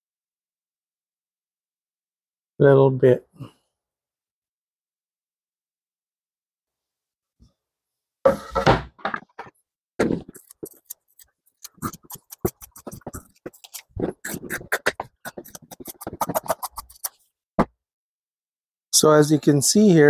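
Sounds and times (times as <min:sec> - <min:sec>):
board knock and scrape: 0:08.3 - 0:10.8, 0:12.5 - 0:17.8.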